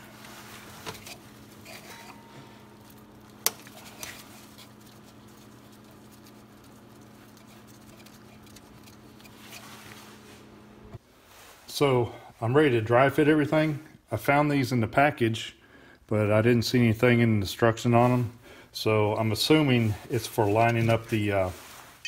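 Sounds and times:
steady low hum: 0.0s - 13.1s.

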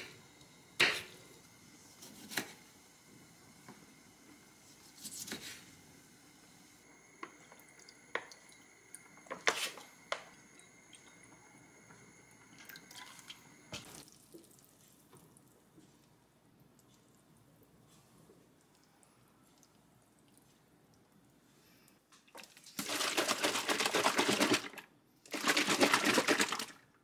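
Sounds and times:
knife cutting tomato on board: 2.0s - 2.6s.

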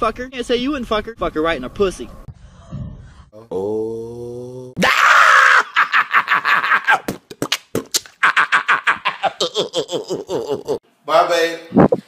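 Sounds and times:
man cackling laughter: 5.6s - 7.1s, 8.1s - 10.8s.

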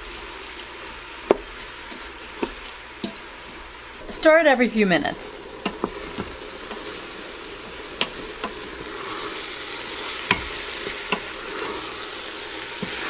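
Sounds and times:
onion sizzling in hot oil: 0.0s - 13.0s
wooden spoon scraping a pot: 5.6s - 13.0s
spoon knocking against pot: 10.3s - 10.5s.

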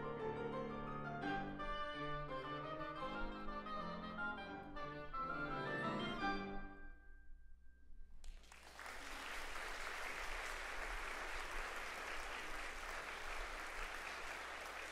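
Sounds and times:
audience applauding: 8.2s - 14.9s.

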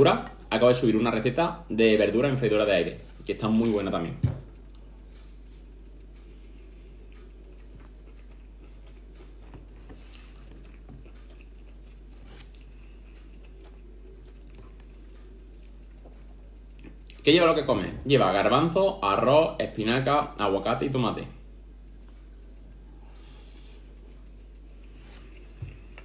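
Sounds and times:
low background hum: 0.0s - 26.0s
person chewing food: 4.5s - 17.3s, 21.6s - 26.0s.

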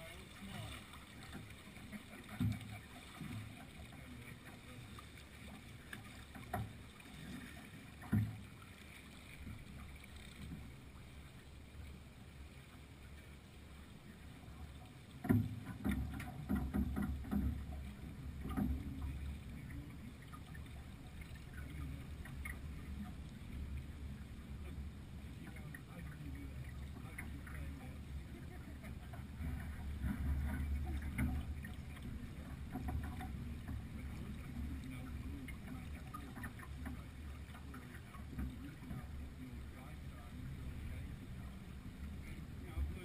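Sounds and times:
water moving along a hull: 0.0s - 43.0s.

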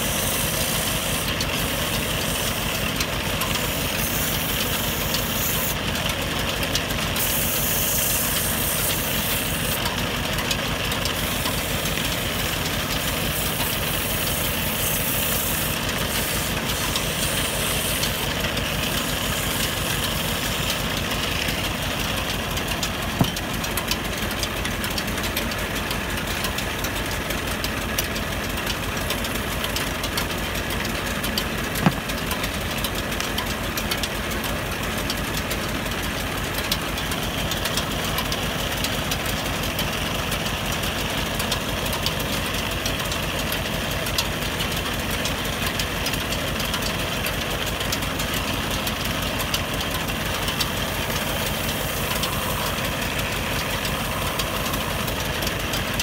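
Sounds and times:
tool scraping turning wood: 0.0s - 6.0s, 6.8s - 24.0s, 31.2s - 33.5s, 48.8s - 56.0s
wood lathe motor running: 0.0s - 56.0s.

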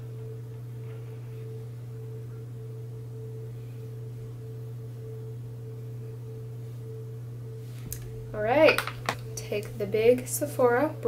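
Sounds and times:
faint high steady tone: 0.0s - 11.0s
low electrical hum: 0.0s - 11.0s.

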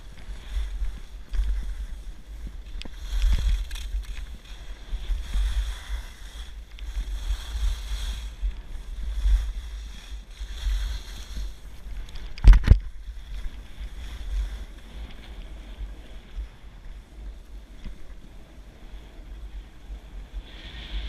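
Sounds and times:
skis sliding on snow: 0.0s - 21.0s
wind buffeting microphone: 0.0s - 21.0s.

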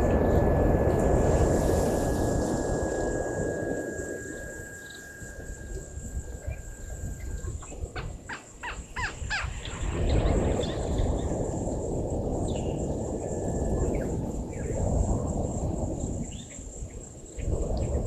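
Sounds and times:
low rumble: 0.0s - 8.2s
insects droning: 0.0s - 18.0s.

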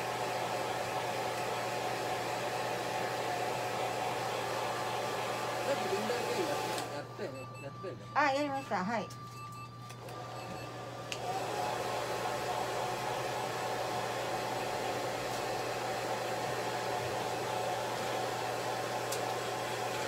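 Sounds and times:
hair dryer blowing: 0.0s - 9.0s, 9.9s - 20.0s
hair dryer switch click: 6.7s - 7.0s, 11.0s - 11.4s, 19.0s - 20.0s.

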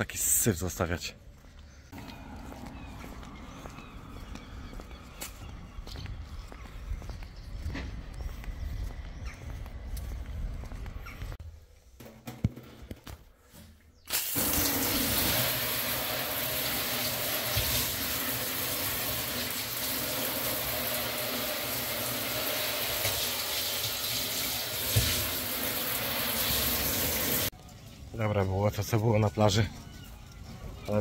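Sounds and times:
shower spraying water: 14.1s - 27.5s.

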